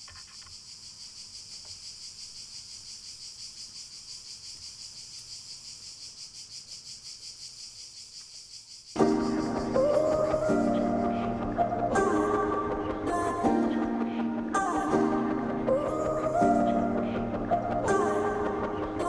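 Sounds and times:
insect chirring: 0.0 - 11.6.

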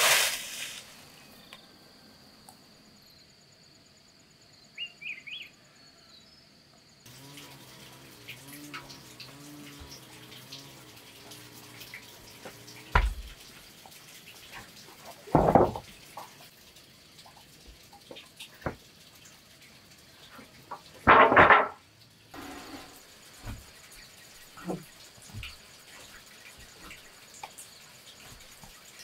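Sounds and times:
wooden planks knocking and clattering: 12.5 - 13.4, 15.2 - 16.3, 20.7 - 21.8.

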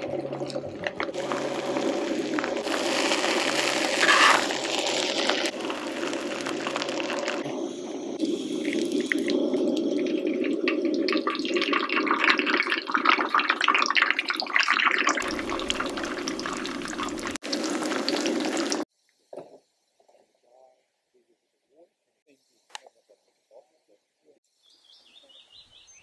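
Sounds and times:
egg sizzling on griddle: 1.1 - 11.6, 14.8 - 18.9.

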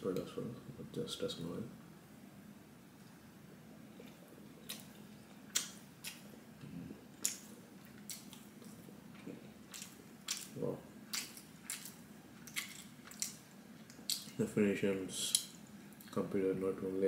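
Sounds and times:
chewing and lip-smacking: 4.0 - 6.4, 7.2 - 14.4
low hum from mouth: 6.4 - 7.1.

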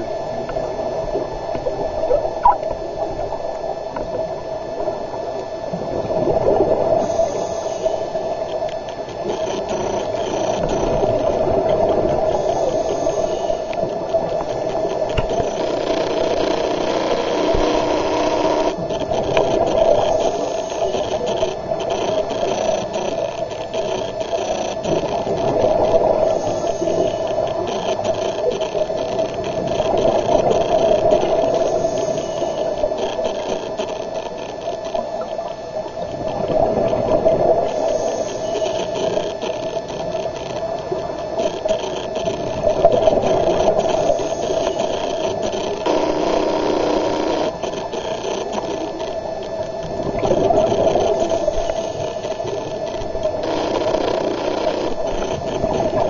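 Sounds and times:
rattling mechanical drone underwater: 0.0 - 56.0.

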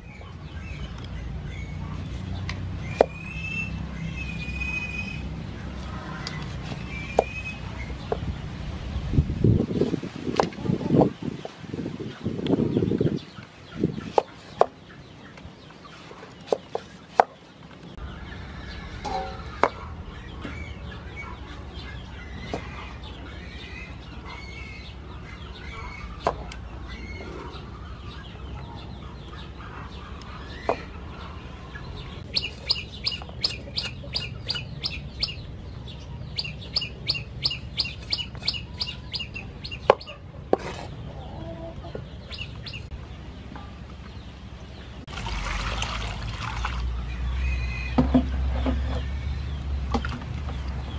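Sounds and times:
birds chirping: 0.0 - 50.9
chickens clucking: 9.7 - 44.3.

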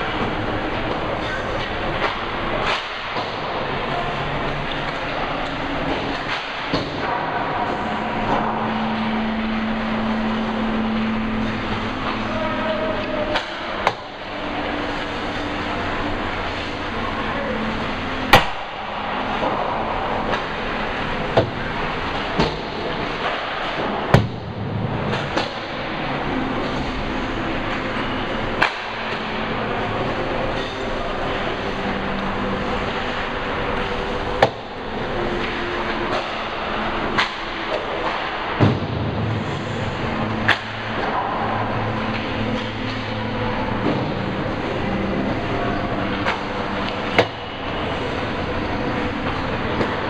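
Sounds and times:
hockey rink crowd din: 0.0 - 50.0
sharp knocks of hockey play: 1.9 - 3.6, 18.3 - 20.7, 22.4 - 25.8, 28.6 - 29.4, 35.4 - 39.6, 40.4 - 43.1
stick cracking puck: 40.4 - 41.5.

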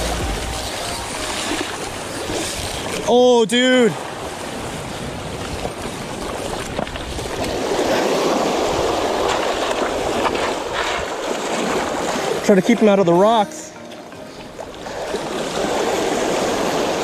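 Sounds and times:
surf washing over rocks: 0.0 - 17.0
wind rumbling on microphone: 4.0 - 12.2.

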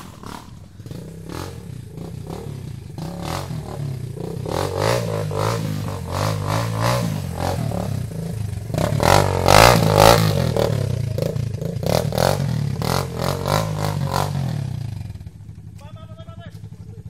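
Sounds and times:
dirt bike engine revving: 0.0 - 15.7.

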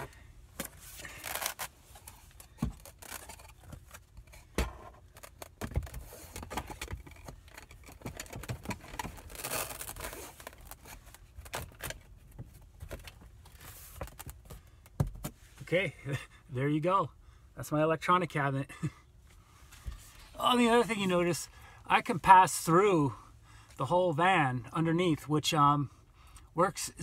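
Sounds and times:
velcro rustling hisses: 0.6 - 3.2.

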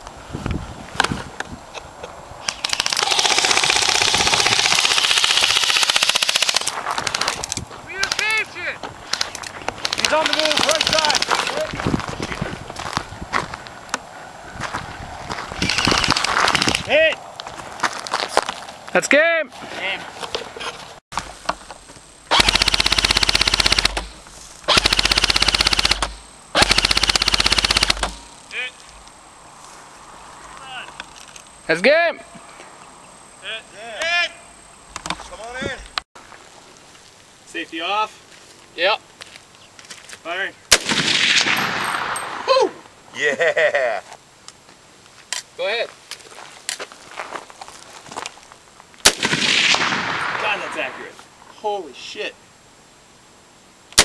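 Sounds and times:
airsoft rifle firing full-auto: 2.6 - 6.7, 22.3 - 24.1, 24.7 - 28.2, 40.7 - 42.1, 49.0 - 50.4.

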